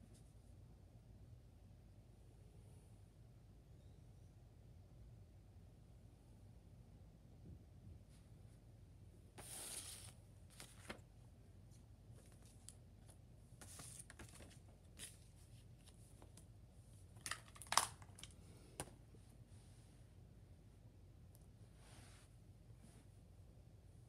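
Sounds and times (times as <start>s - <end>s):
paper rustling: 9.4s - 11.1s, 12.1s - 16.4s.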